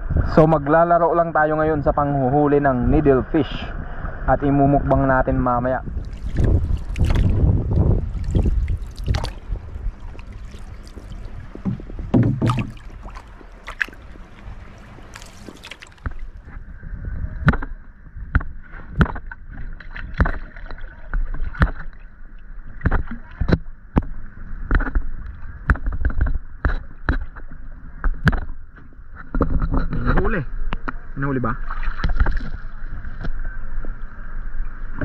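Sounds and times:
low rumble of water: 0.0s - 35.0s
knocks on canoe hull: 11.5s - 13.2s.

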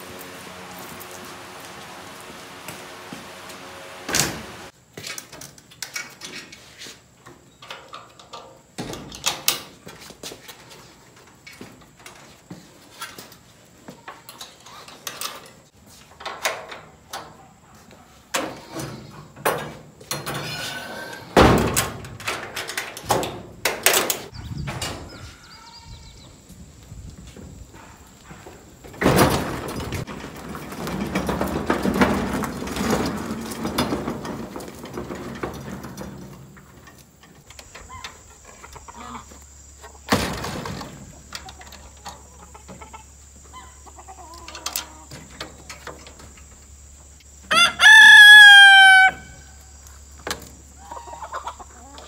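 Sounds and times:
wooden coop knocking and rattling: 28.9s - 38.0s.

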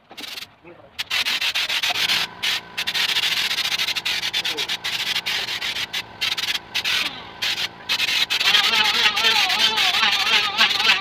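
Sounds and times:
texture spray gun hissing: 0.2s - 11.0s.

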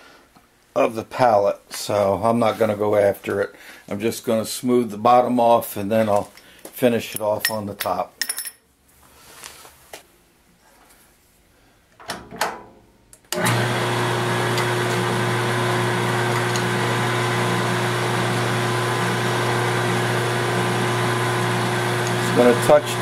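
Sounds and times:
milling machine spindle whine: 13.4s - 23.0s.

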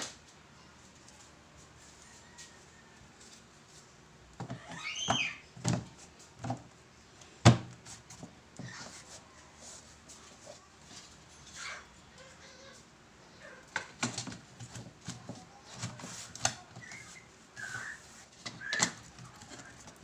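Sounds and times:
grille panel scraping squeak: 16.8s - 19.0s.

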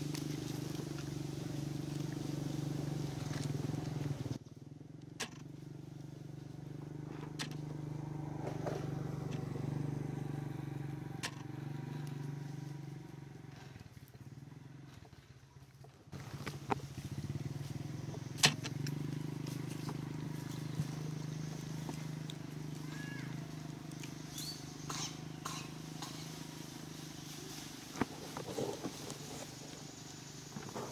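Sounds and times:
small engine running: 0.0s - 30.9s.

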